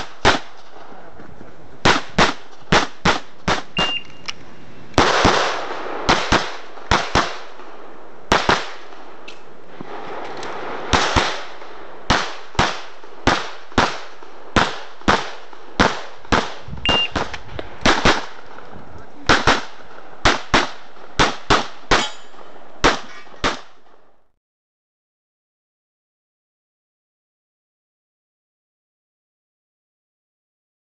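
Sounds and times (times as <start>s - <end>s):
rapid pistol fire: 0.0s - 0.6s, 1.8s - 4.0s, 5.0s - 7.6s, 8.3s - 9.0s, 9.9s - 18.4s, 19.3s - 22.0s.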